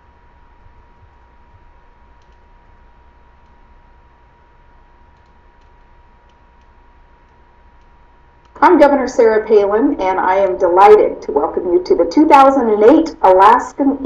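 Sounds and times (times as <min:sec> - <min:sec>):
background hum and hiss: 0:00.0 - 0:14.0
thin steady whine: 0:00.0 - 0:14.0
soft clicks: 0:02.1 - 0:02.6, 0:03.3 - 0:03.6, 0:05.0 - 0:08.6.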